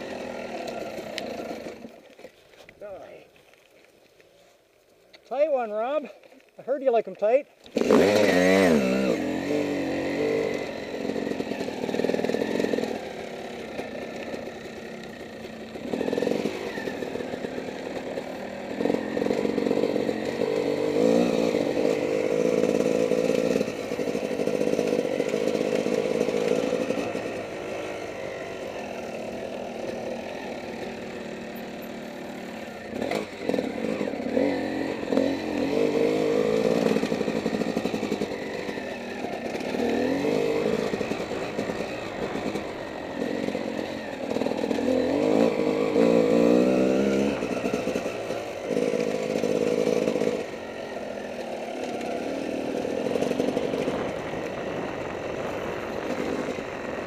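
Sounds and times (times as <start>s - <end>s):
dirt bike engine revving: 0.0s - 2.0s, 7.6s - 57.0s.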